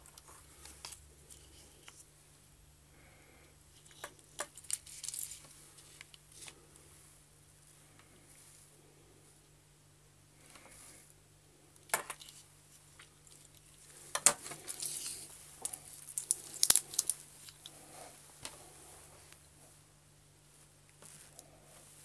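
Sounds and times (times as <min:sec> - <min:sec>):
watch bracelet handled: 0:03.8 - 0:06.6, 0:13.0 - 0:17.7
handling clicks and clatter: 0:13.2 - 0:17.7.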